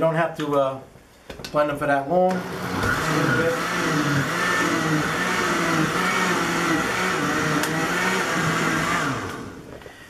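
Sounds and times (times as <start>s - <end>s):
blender running: 2.3s - 9.7s.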